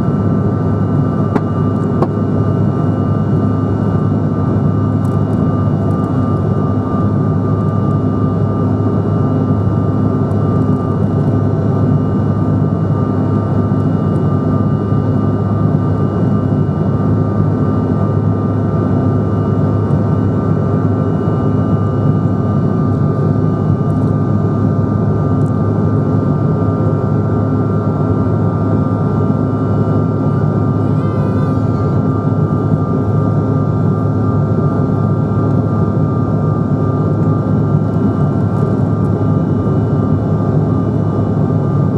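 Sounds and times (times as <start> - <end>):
jet engine roar in cabin: 0.0 - 41.9
high whine: 29.9 - 33.9.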